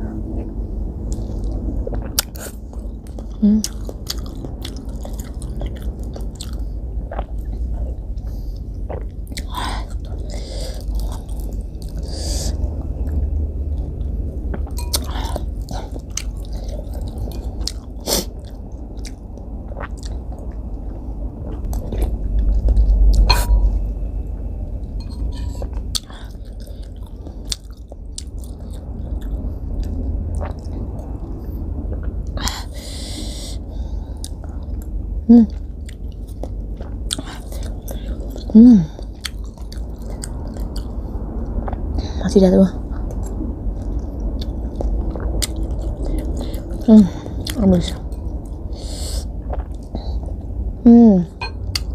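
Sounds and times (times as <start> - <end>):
chewing and slurping soup: 0.3 - 42.0, 42.8 - 50.6.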